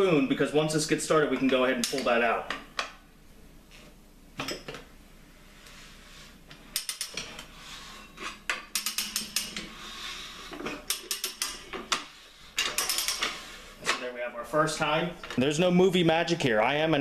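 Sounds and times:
ratchet clicking: 0:08.7 - 0:09.6.

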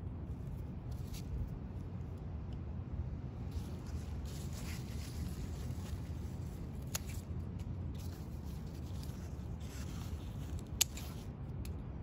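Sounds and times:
low city rumble: 0:00.0 - 0:12.0
garden snips cutting stems: 0:03.5 - 0:07.3, 0:07.9 - 0:11.8.

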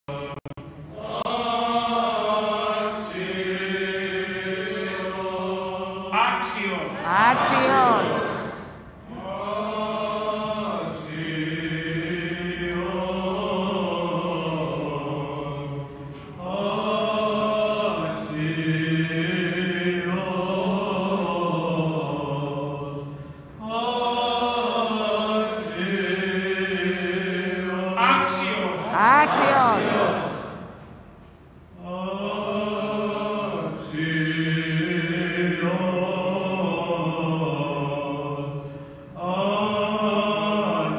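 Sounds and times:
men chanting in unison: 0:01.1 - 0:15.6, 0:23.8 - 0:30.8.

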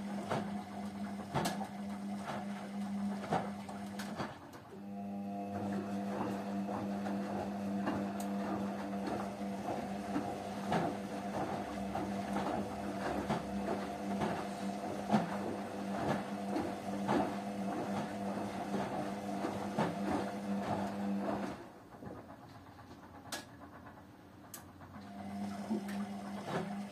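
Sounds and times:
washing machine motor hum: 0:00.0 - 0:26.9
laundry knocking and swishing: 0:05.7 - 0:21.6, 0:25.5 - 0:26.9.

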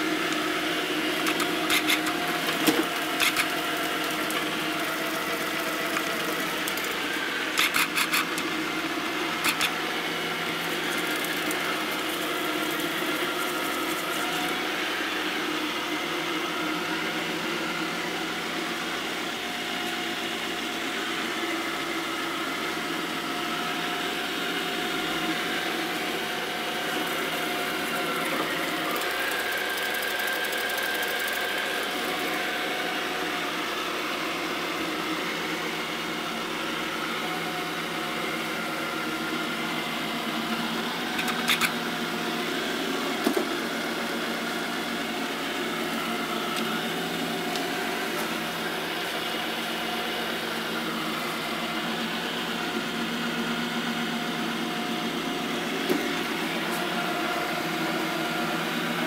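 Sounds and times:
robot vacuum whirring: 0:00.0 - 0:15.5, 0:23.7 - 0:53.6.

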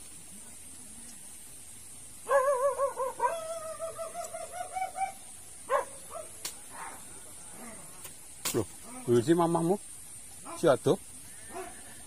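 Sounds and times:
dog howling: 0:02.3 - 0:06.3.

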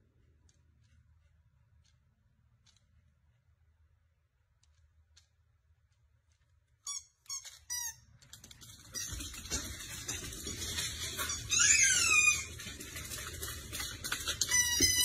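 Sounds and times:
dog paws clattering on wooden floor: 0:07.3 - 0:15.0.

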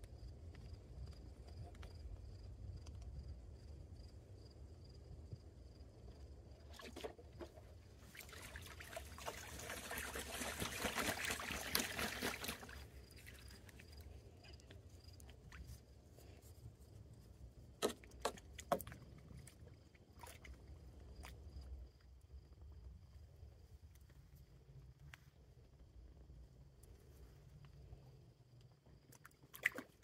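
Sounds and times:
water splashing: 0:06.7 - 0:13.6.

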